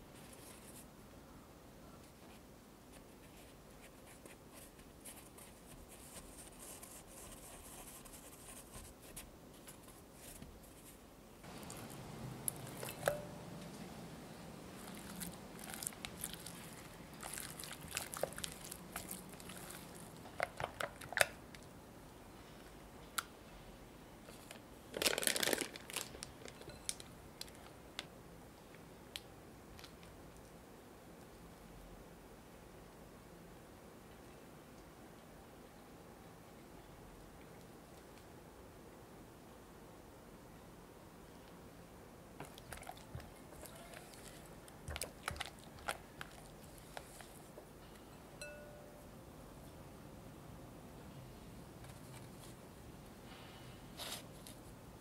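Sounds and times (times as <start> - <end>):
sugar rustling: 2.1 - 21.7, 42.4 - 47.6.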